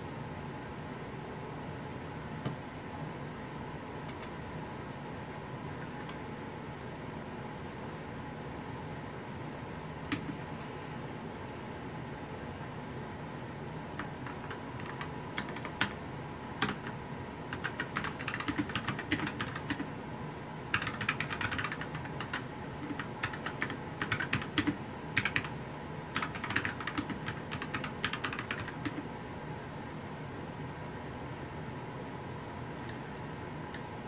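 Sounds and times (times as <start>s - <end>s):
steady background hiss: 0.0s - 34.0s
keyboard keys clacking: 17.6s - 19.8s, 20.7s - 25.5s, 26.2s - 29.0s.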